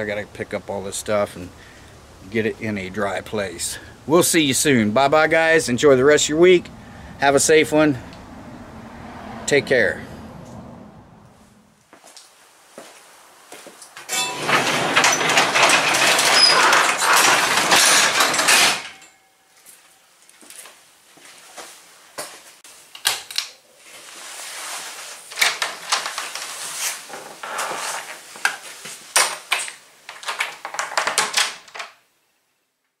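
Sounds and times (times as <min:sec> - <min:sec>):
garage door rattling shut: 0:14.1 - 0:19.2.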